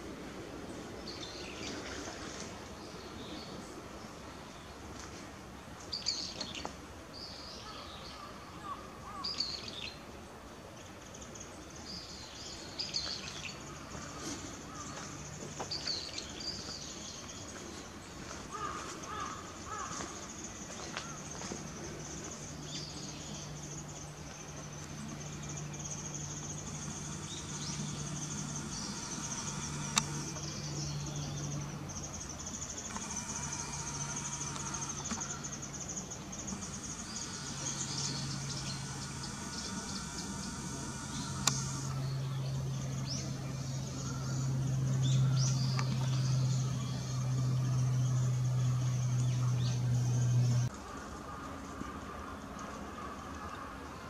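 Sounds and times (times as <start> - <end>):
steady high hiss: 0.0 - 52.3
faint low hum: 0.0 - 54.0
bird chirps: 20.4 - 50.7
sharp click: 26.8 - 30.6, 36.7 - 42.0.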